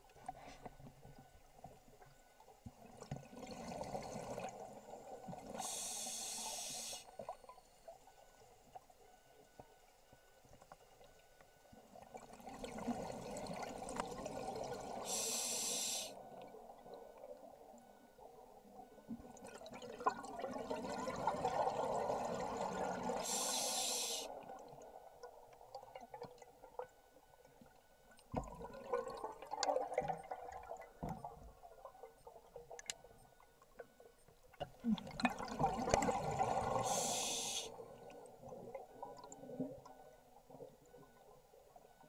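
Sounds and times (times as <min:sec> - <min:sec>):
short high hiss: 0:23.3 - 0:24.3, 0:36.9 - 0:37.7.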